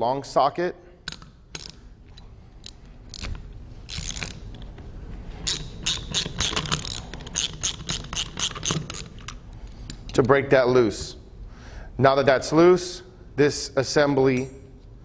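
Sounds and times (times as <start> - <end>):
socket ratchet clicking: 1.1 - 4.7, 5.4 - 10.2.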